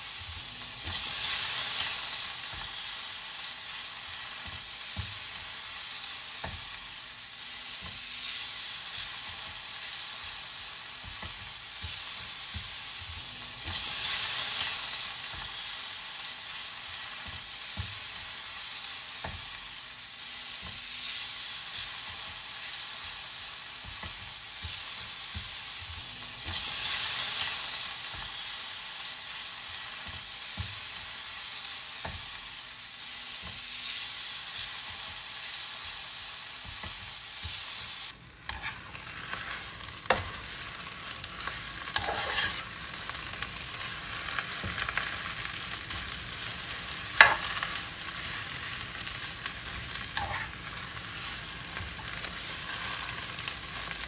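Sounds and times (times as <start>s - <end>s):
food sizzling in frying pan: 0.0s - 54.0s
spatula scraping pan: 38.5s - 42.8s, 45.9s - 53.2s.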